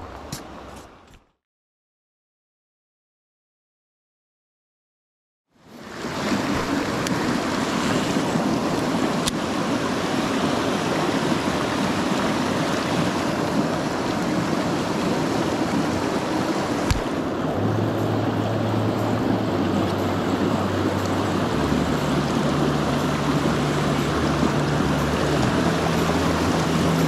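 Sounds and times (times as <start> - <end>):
stream rushing over rocks: 5.6 - 27.0.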